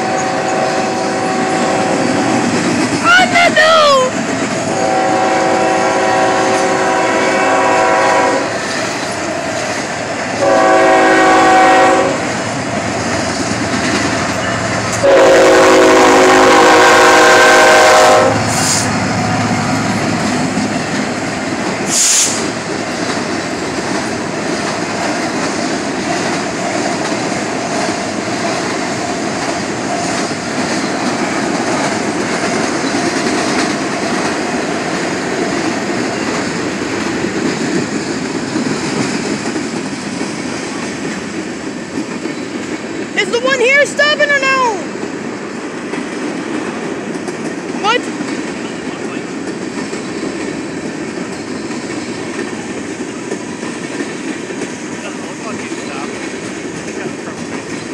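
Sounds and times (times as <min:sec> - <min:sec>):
train air horn blasts: 0:00.0 - 0:02.4, 0:04.7 - 0:08.6, 0:10.4 - 0:12.3, 0:15.0 - 0:19.0, 0:21.9 - 0:22.5
locomotives passing: 0:00.0 - 0:57.9
train cars rumbling and clattering: 0:00.0 - 0:57.9
air brake hiss: 0:21.9 - 0:22.6.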